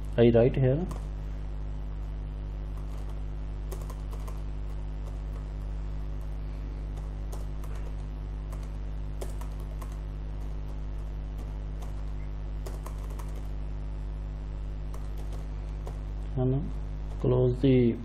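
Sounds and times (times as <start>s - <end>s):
low electrical hum: 0.0s - 18.0s
computer keyboard typing: 0.9s - 1.1s, 2.8s - 5.5s, 6.2s - 10.8s, 11.4s - 13.6s, 14.9s - 16.1s.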